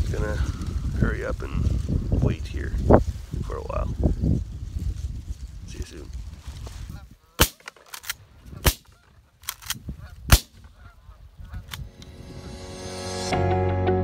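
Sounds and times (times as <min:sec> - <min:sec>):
shotgun shots: 0:07.4 - 0:09.0, 0:10.3 - 0:10.6
music: 0:11.8 - 0:14.0.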